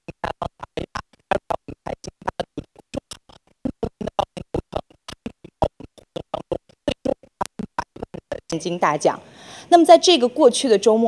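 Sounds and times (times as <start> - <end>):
chopped electronic pulses: 0.0 - 8.6.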